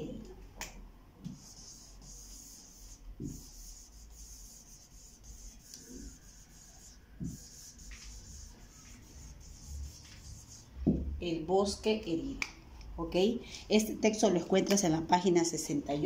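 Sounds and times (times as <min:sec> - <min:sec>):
marker squeaking on a whiteboard: 0:01.2 - 0:11.0.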